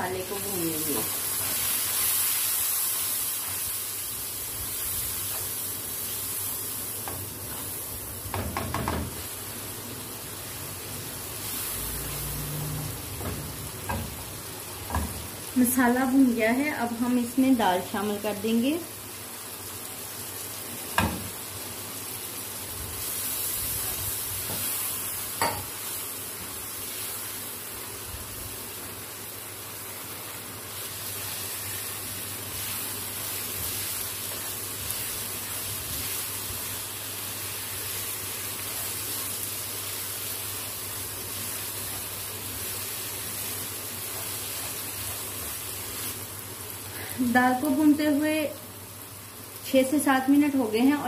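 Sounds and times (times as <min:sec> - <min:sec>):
lentils sizzling in oil: 0:00.0 - 0:51.0.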